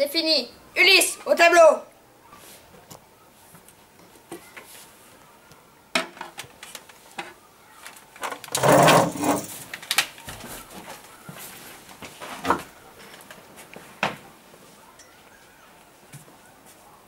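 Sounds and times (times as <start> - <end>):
chair scraping over floor: 8.5 - 9.6.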